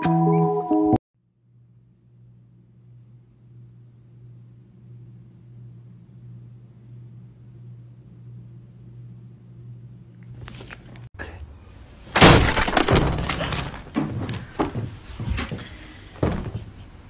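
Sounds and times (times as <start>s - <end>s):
low steady hum: 1.2s - 17.0s
loud crash: 12.1s - 13.9s
knocks and clatters: 12.2s - 17.0s.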